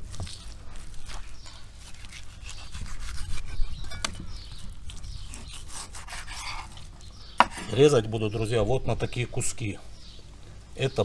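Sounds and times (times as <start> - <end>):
knife slicing raw meat: 0.1 - 4.2, 4.9 - 6.8, 7.4 - 7.8
knife scraping cutting board: 1.8 - 4.1, 5.3 - 7.9.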